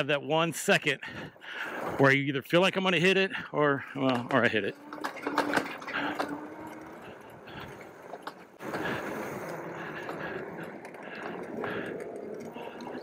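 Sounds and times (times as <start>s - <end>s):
tyres rolling on dirt: 1.6s - 13.0s
bike clicks and rattles: 3.8s - 13.0s.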